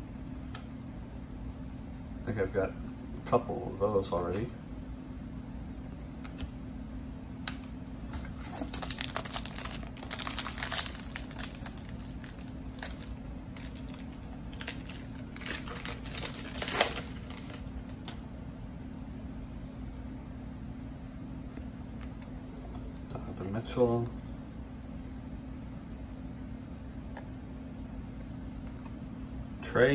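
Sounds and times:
foil wrapper crinkling and tearing: 8.3s - 18.2s.

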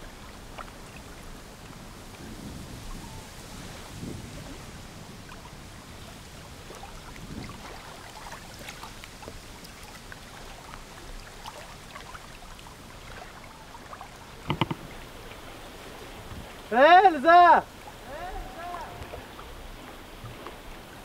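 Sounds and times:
water lapping around pier: 0.0s - 21.0s
faint taps: 14.5s - 14.9s.

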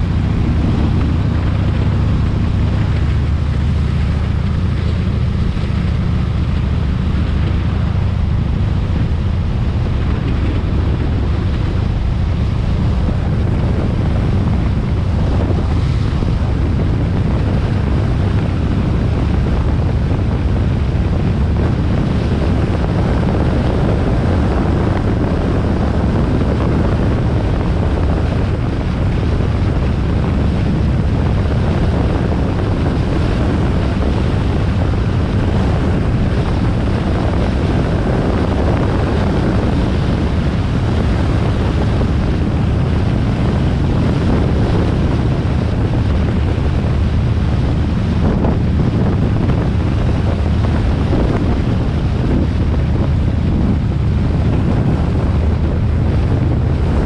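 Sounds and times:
motorcycle engine cruising: 0.0s - 57.0s
wind rush on microphone: 0.0s - 57.0s.

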